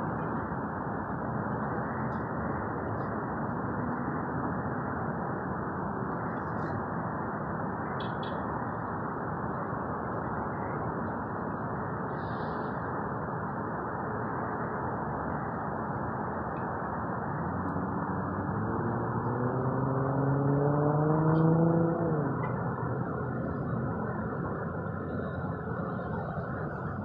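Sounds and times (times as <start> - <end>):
jet engines rumbling: 0.0 - 27.0
street traffic: 0.0 - 27.0
road vehicle passing: 17.1 - 27.0.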